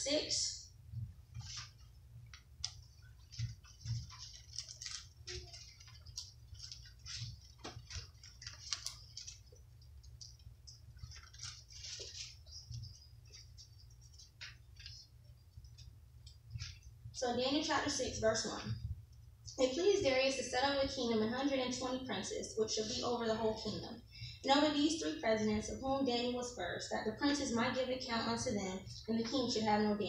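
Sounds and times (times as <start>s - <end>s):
low steady hum: 0.0s - 30.0s
book pages rustling: 1.3s - 16.9s.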